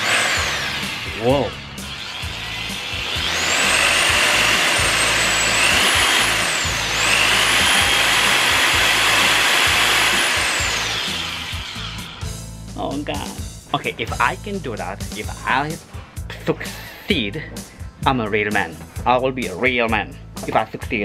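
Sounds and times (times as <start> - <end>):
hammer drill motor whine: 0.0 - 12.4.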